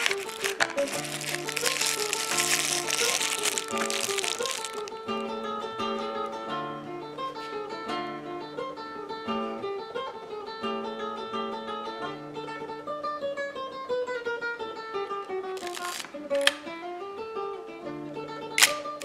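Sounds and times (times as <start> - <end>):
plucked acoustic guitar melody: 0.0 - 19.0.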